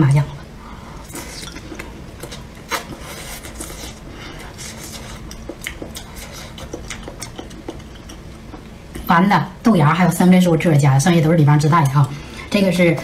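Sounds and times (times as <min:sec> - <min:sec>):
chewing and mouth sounds: 0:01.0 - 0:08.7.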